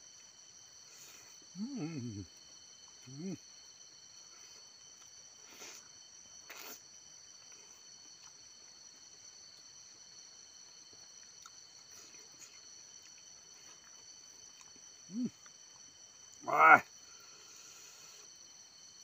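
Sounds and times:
faint chewing clicks: 10.9s - 14.8s.

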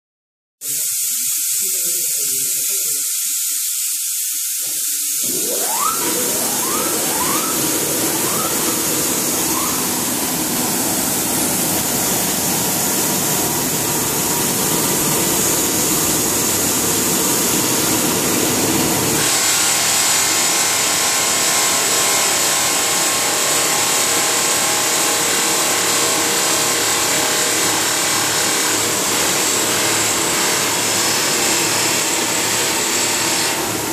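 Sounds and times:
short rising whines: 5.0s - 19.3s
motor hum: 5.0s - 21.6s
polishing wheels grinding metal: 5.2s - 19.4s.

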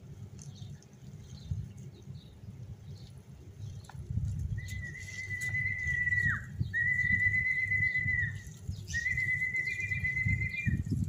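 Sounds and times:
wind rumbling on microphone: 0.0s - 11.0s
person whistling long notes: 4.7s - 10.7s.

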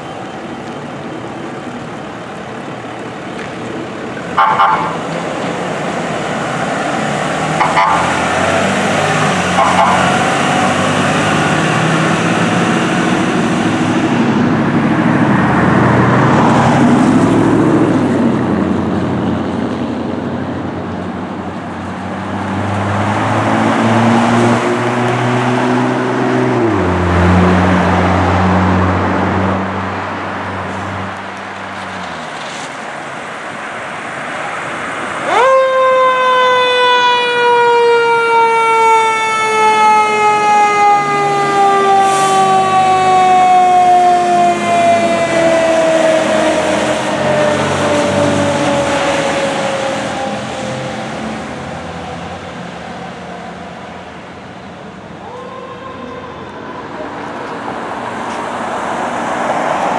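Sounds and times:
fire engine siren wailing: 0.0s - 18.6s, 34.4s - 59.9s
diesel engines running: 0.0s - 59.9s
street traffic: 0.0s - 59.9s
engine revving: 5.7s - 19.2s, 22.2s - 29.8s.

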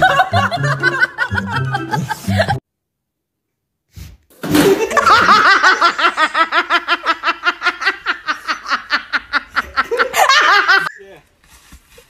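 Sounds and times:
person laughing hard: 0.0s - 2.6s, 4.6s - 11.0s.

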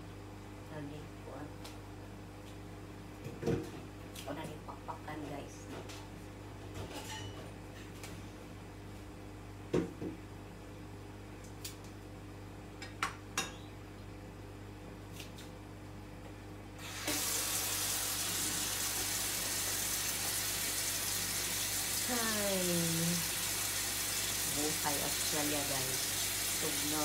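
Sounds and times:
low steady hum: 0.0s - 16.8s
tap water running: 16.8s - 27.0s.

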